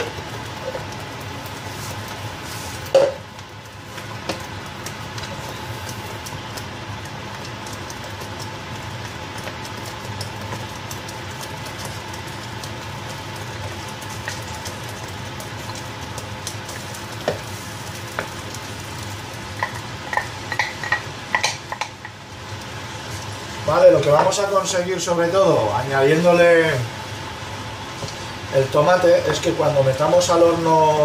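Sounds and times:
sauce sizzling in a frying pan: 0.0 - 31.0
wooden spoon knocking on pan: 2.9 - 3.2, 17.2 - 17.4, 19.6 - 22.2.

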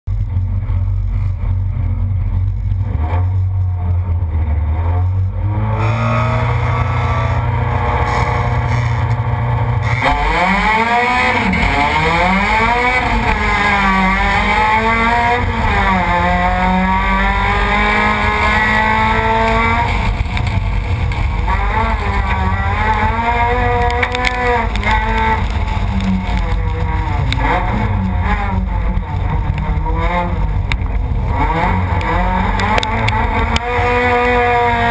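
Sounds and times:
car engine revving through gear changes: 4.4 - 34.9.

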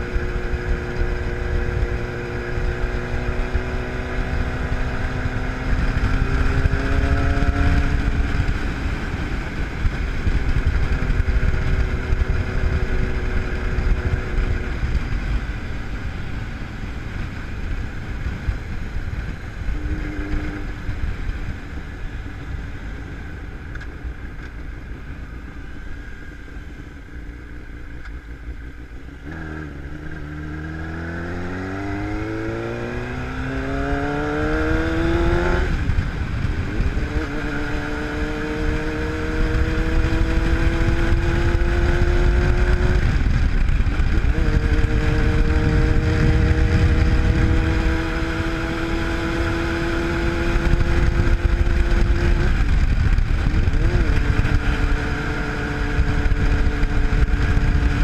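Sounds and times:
motorcycle engine accelerating: 0.0 - 58.0
wind rushing: 30.2 - 58.0.

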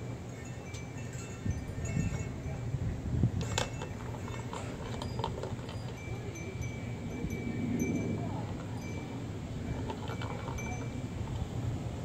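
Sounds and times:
wind chimes ringing: 0.0 - 11.7
plastic toy clattering: 3.4 - 6.0.

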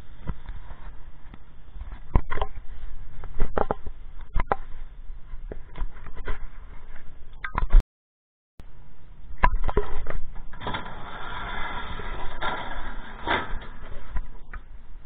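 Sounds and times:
metal roll-up door rattling: 10.4 - 14.4
loud door clunk: 10.5 - 14.2.

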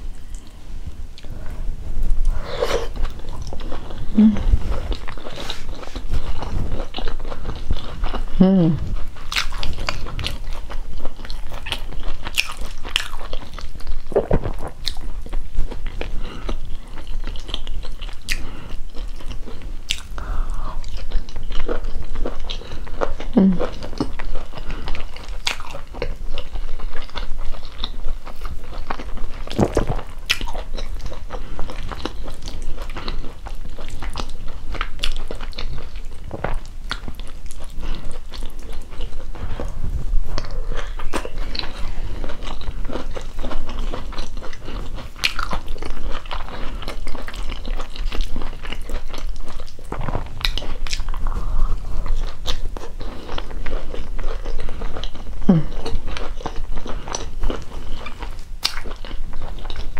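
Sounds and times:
person chewing soft food: 0.0 - 59.9.

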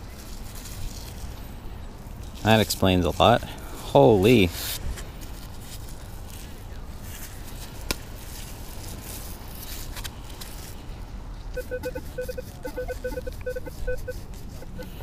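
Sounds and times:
metal detector beeps: 11.6 - 15.0.

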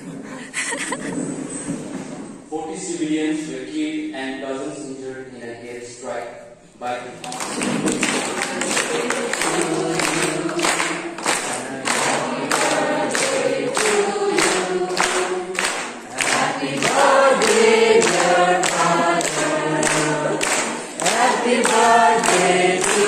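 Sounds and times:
group of people singing: 7.2 - 23.0
hand-clapping to the beat: 7.2 - 23.0.

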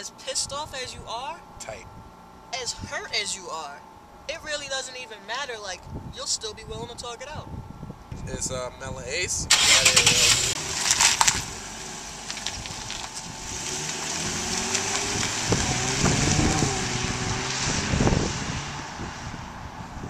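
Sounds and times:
car engine accelerating: 9.5 - 20.0.

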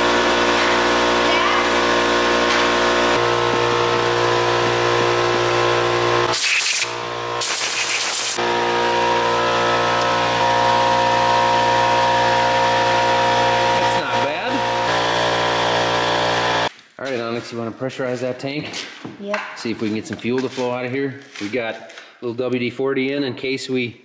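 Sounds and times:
air compressor humming: 0.0 - 16.7
air hiss bursts: 6.3 - 8.4.

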